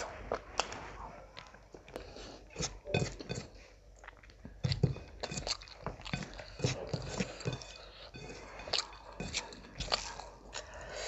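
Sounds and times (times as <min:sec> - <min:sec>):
fingers squishing food on metal plate: 0:01.4 - 0:11.0
wet chewing and mouth smacks: 0:04.0 - 0:11.0.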